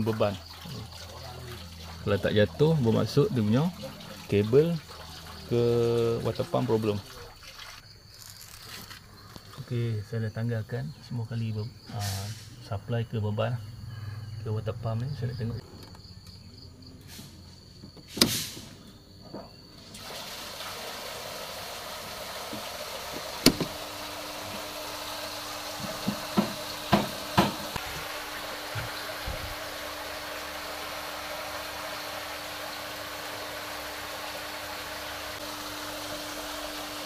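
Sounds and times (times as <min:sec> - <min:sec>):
steady rushing hiss: 0:17.0 - 0:18.9, 0:19.9 - 0:37.0.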